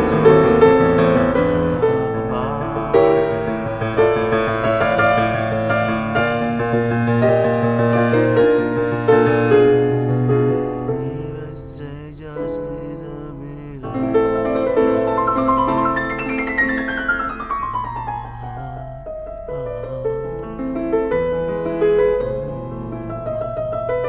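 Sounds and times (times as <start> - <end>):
piano music: 0.0 - 24.0.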